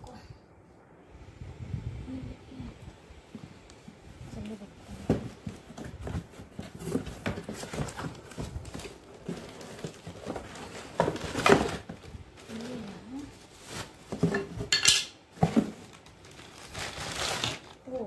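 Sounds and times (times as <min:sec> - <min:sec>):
plastic and paper wrapping rustling: 0:04.3 - 0:18.0.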